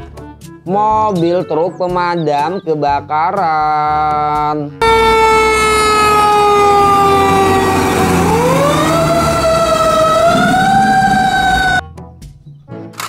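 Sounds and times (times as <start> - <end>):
fire truck siren wailing: 4.8 - 11.8
truck engine rumbling: 4.8 - 11.8.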